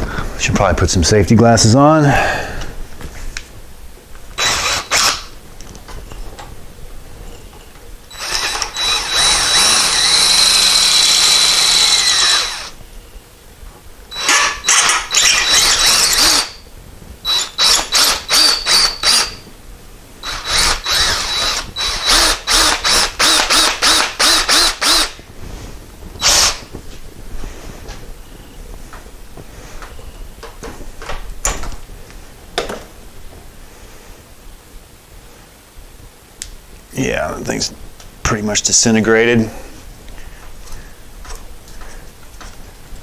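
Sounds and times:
electric drill whining: 4.4 - 5.4, 8.1 - 12.8, 14.1 - 16.6, 17.3 - 19.5, 20.2 - 25.2, 26.2 - 26.7.

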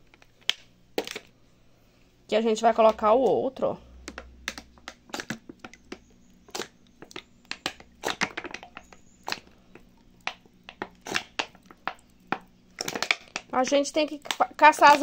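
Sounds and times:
plastic bottle crackling: 4.0 - 15.0.

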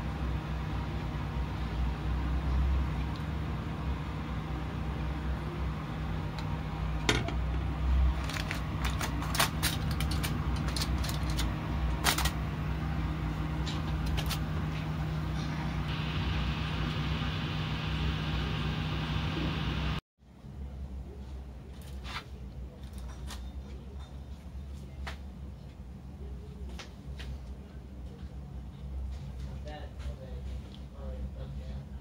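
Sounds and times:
steady low hum: 0.0 - 21.7.

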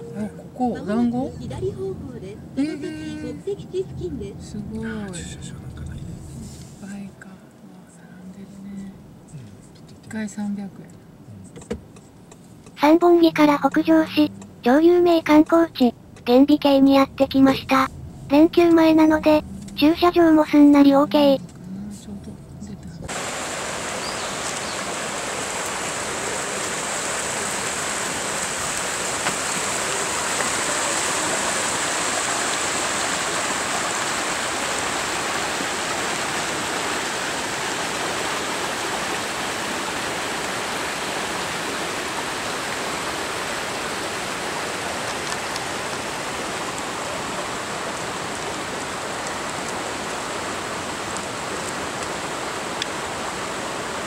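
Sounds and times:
river water rushing over rocks: 23.1 - 54.0.

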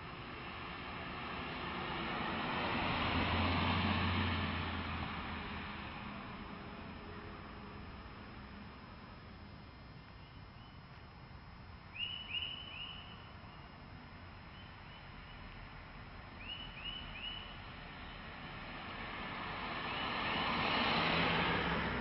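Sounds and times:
car passing: 0.0 - 8.8, 16.4 - 22.0
bird chirping: 10.0 - 10.8, 11.9 - 13.8, 16.4 - 18.2.

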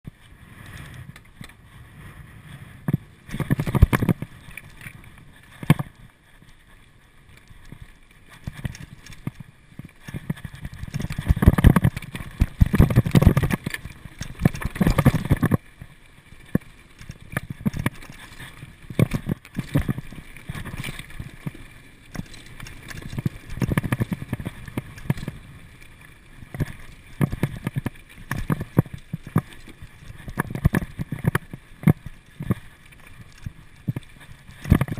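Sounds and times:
bike rattling and knocking: 2.8 - 4.3, 10.0 - 15.6, 16.6 - 25.4.

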